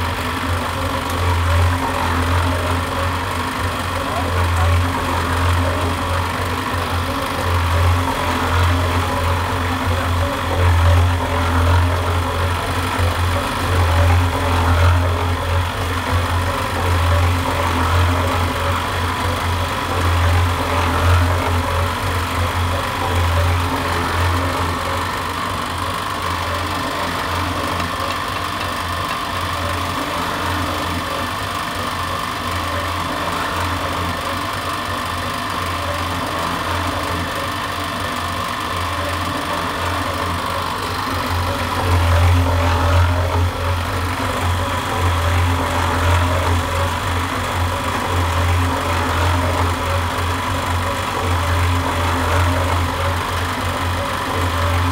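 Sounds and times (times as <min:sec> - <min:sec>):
drum mixer humming: 0:00.0 - 0:54.9.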